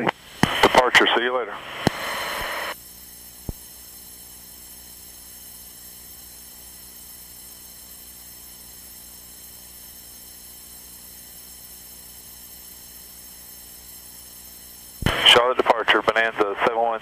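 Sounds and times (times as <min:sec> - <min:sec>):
intercom hum and hiss: 0:00.0 - 0:02.8, 0:15.0 - 0:17.0.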